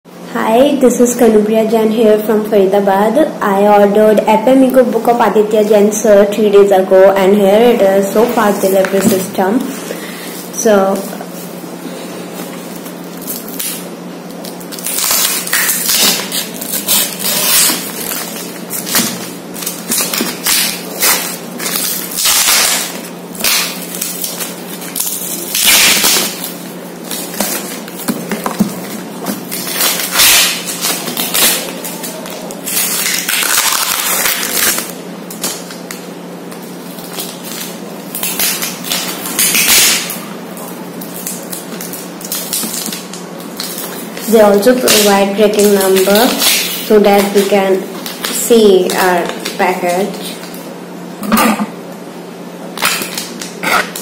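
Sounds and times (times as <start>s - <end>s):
packing tape crinkling and rustling: 12.3s - 50.8s, 52.7s - 54.0s
paper being torn and crumpled: 14.4s - 28.0s, 28.8s - 35.7s.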